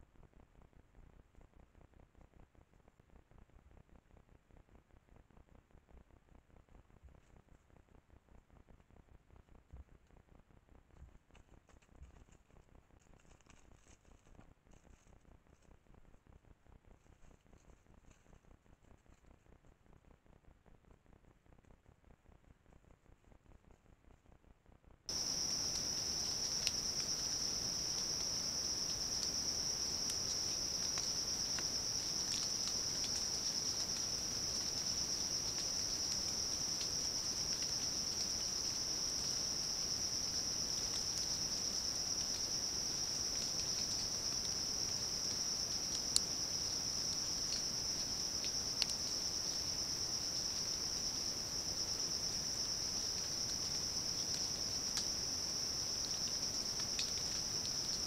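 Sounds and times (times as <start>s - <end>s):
insect chorus shrilling: 25.1s - 58.0s.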